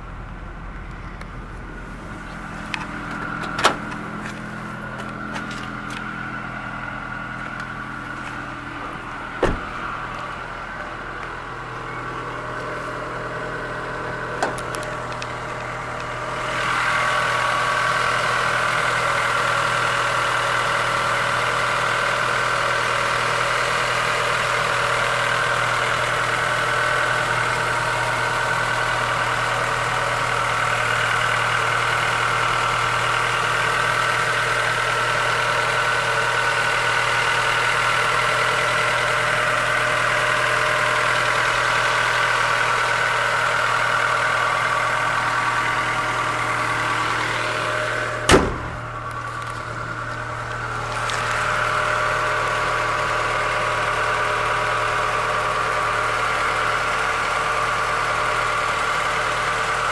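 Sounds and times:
car engine idling: 0.0s - 59.9s
sharp engine knocks: 2.7s - 4.4s, 9.1s - 10.0s, 14.3s - 15.0s, 48.1s - 50.1s.

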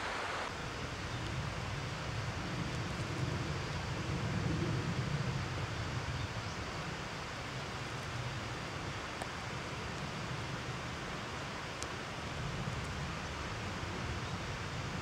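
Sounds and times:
wind noise: 0.0s - 7.4s.

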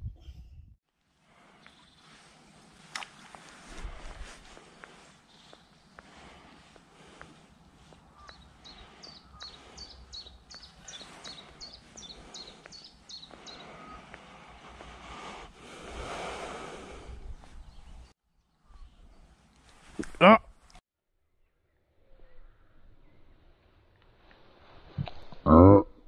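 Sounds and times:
wind rumbling on microphone: 0.0s - 0.8s, 3.6s - 4.7s, 13.4s - 18.1s.

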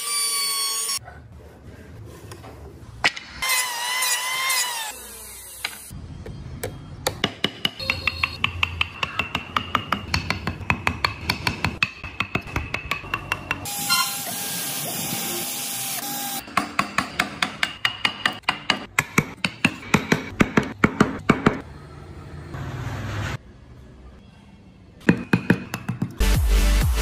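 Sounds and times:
hammer tapping carving tools: 5.6s - 13.7s, 16.4s - 21.6s.

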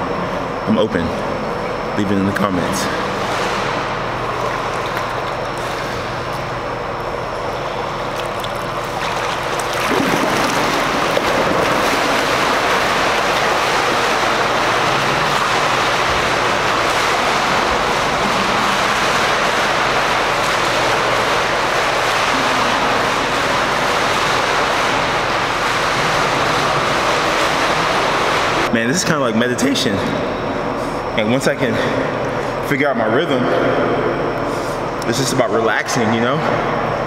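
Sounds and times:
swimmer splashing: 3.0s - 28.7s
water lapping at pool edge: 3.0s - 28.7s.

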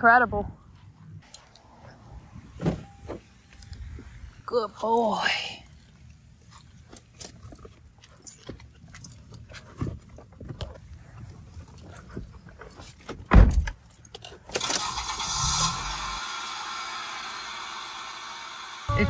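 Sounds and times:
keys jangling: 1.2s - 1.7s, 6.9s - 9.8s, 11.5s - 14.9s
car door thudding shut: 13.3s - 13.7s.

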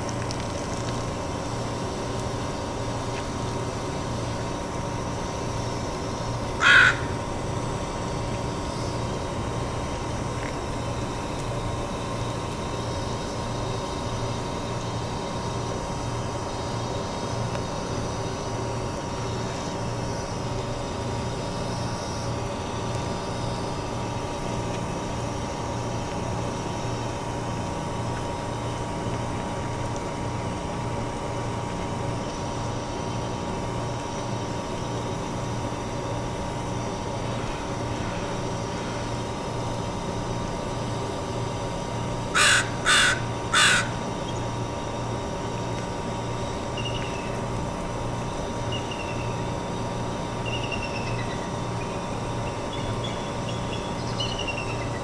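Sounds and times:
low pulsing mechanical hum: 0.0s - 55.0s
crow cawing: 6.6s - 7.2s, 42.4s - 44.0s.

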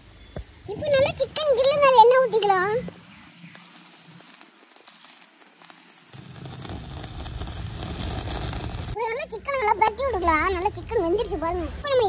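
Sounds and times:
chicken sizzling on grill: 0.0s - 9.6s
low rumble: 6.2s - 9.0s.

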